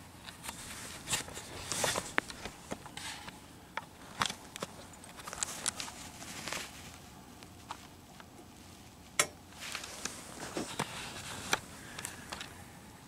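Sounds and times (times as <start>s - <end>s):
clothing rustling: 0.4s - 3.4s, 4.0s - 12.6s.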